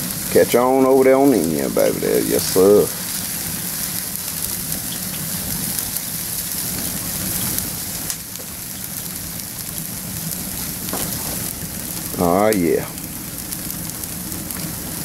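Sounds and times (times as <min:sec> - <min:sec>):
fire crackles: 0:00.0 - 0:15.0
wood fire hissing: 0:00.0 - 0:15.0.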